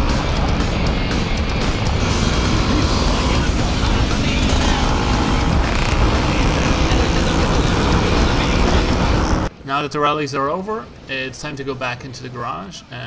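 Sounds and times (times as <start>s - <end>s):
wind and road noise: 0.0s - 9.6s
motor scooter engine running: 2.0s - 9.5s.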